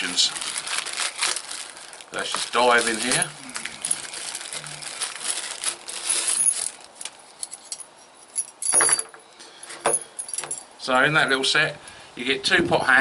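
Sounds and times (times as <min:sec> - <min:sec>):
packaging rustling: 0:00.0 - 0:07.8
chain and hooks clinking: 0:02.8 - 0:10.7.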